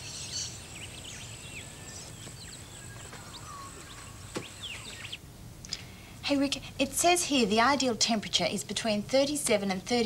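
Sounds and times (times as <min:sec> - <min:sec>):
small birds chirping: 0:00.0 - 0:05.8.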